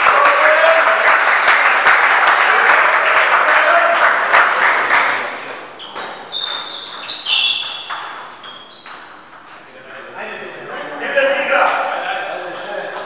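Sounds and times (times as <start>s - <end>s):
audience applause: 0.0s - 5.5s
table tennis ball bouncing: 5.5s - 10.1s.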